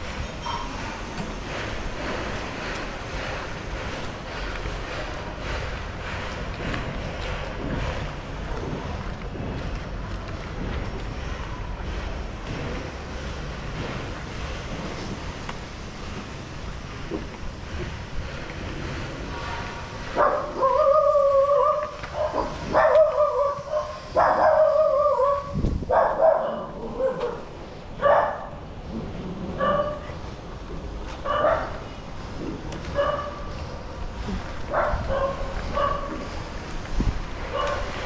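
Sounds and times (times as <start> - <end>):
dog barking and yelping: 20.2 - 28.5, 29.6 - 30.0, 31.2 - 31.8, 33.0 - 33.5, 34.7 - 36.1.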